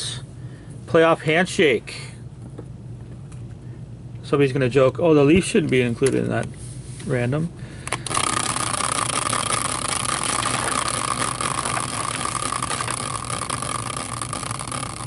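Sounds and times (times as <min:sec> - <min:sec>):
caster wheel whirring and ringing: 0:08.0 - 0:15.0.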